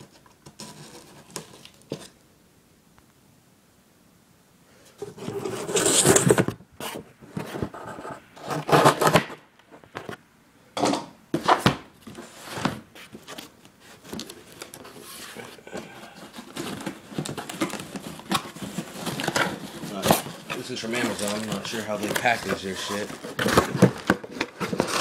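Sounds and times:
knife cutting cardboard box: 0:05.1 - 0:09.4, 0:14.1 - 0:25.0.

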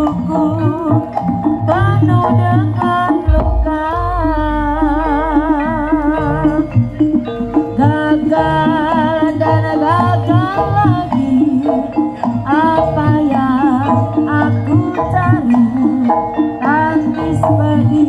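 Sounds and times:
clattering percussion: 0:00.0 - 0:18.0
low drum beat: 0:03.3 - 0:06.2
sliding high melody: 0:03.3 - 0:07.5.

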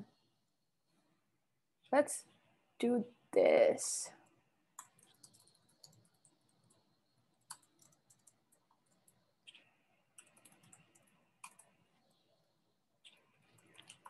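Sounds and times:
typing on a keyboard: 0:04.8 - 0:11.8, 0:13.0 - 0:14.0.

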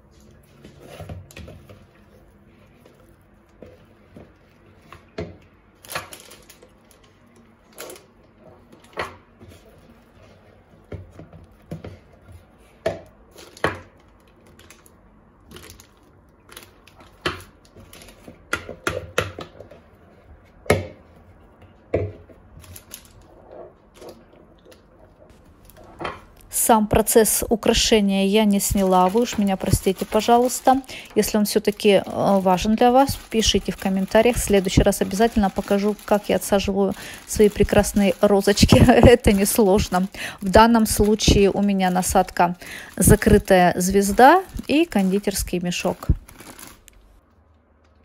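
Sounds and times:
soft scraping and rustling: 0:06.9 - 0:13.4.

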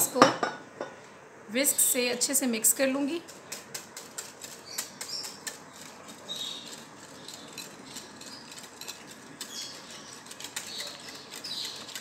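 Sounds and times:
whisk scraping glass bowl: 0:03.2 - 0:12.0.

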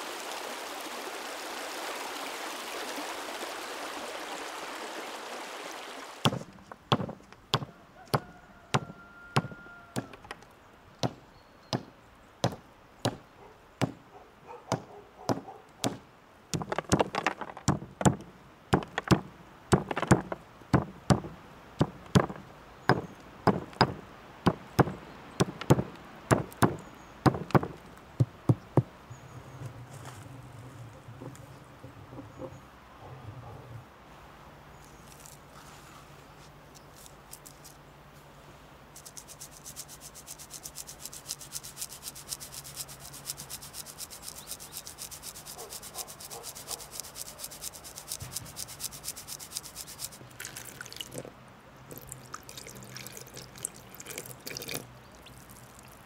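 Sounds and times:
river water running: 0:00.0 - 0:07.6, 0:14.1 - 0:56.0
wooden mallet striking stone: 0:06.2 - 0:10.4, 0:14.7 - 0:28.9.

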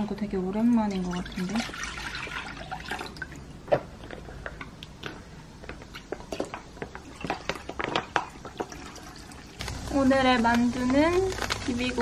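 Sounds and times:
broth pouring into a pot: 0:07.1 - 0:10.1
plastic pouch crinkling: 0:09.6 - 0:12.0.

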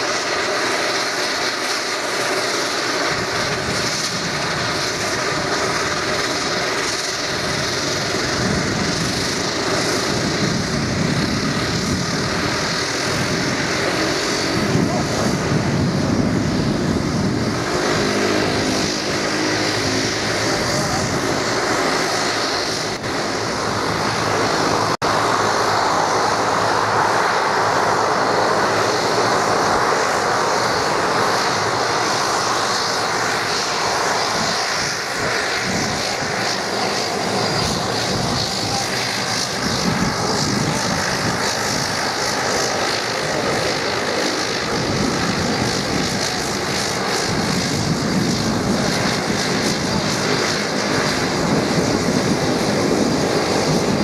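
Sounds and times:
turboprop engine drone: 0:00.0 - 0:54.0.

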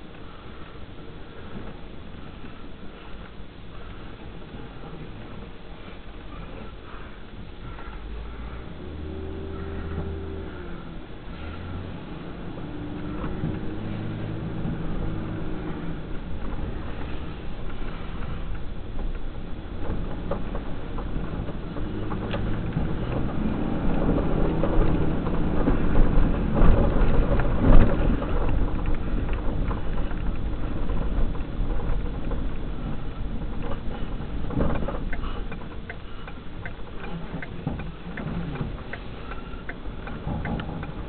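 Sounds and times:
truck engine running: 0:00.0 - 0:41.0
tyres rolling on pavement: 0:00.0 - 0:41.0
regular ticking: 0:12.1 - 0:41.0.

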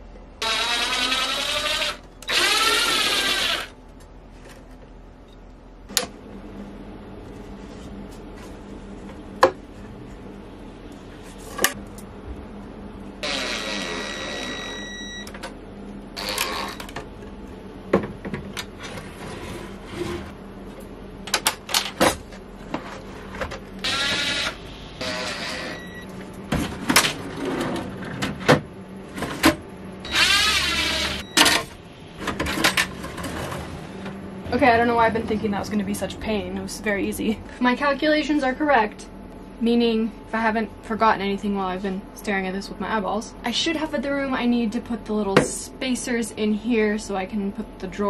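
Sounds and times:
cordless drill driving screws: 0:00.4 - 0:03.7, 0:23.8 - 0:25.8, 0:30.1 - 0:31.2.

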